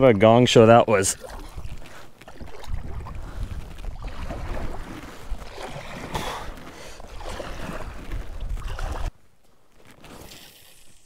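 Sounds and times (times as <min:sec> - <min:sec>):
wind buffeting microphone: 0:01.1 - 0:09.1.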